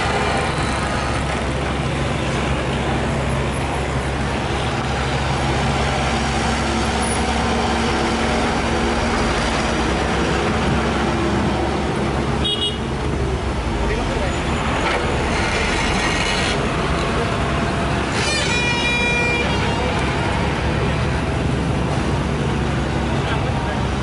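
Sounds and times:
excavator diesel engine under load: 0.0s - 18.8s.

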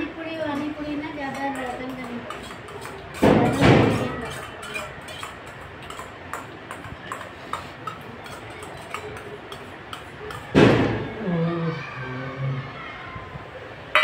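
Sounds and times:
spoon clatter: 1.3s - 10.5s
spoon scraping metal bowl: 1.5s - 6.1s, 6.7s - 10.5s.

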